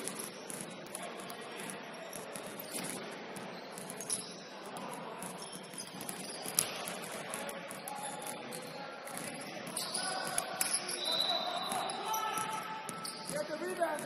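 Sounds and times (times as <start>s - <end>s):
sneakers squeaking on court: 0.0s - 14.0s.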